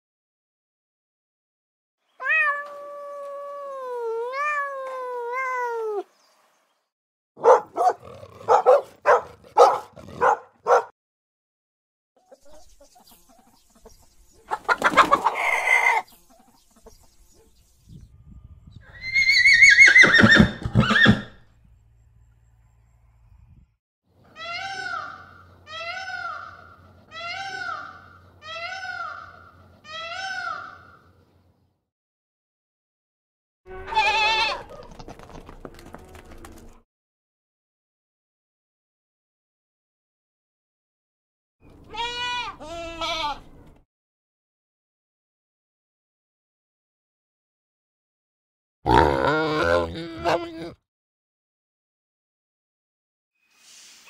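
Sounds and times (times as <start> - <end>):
small dog barking: 7.4 - 10.9
peacock calling: 12.3 - 17.5, 24.3 - 31.2
animal yowling: 48.9 - 50.8.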